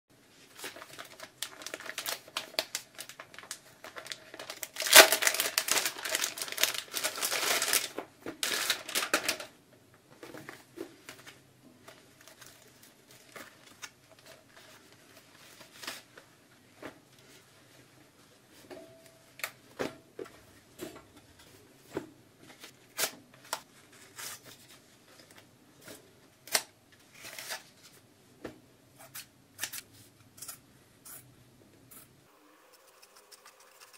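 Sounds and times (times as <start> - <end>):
packaging clicks and rustles: 0.6 - 9.5
plastic bag crinkling: 0.6 - 9.5.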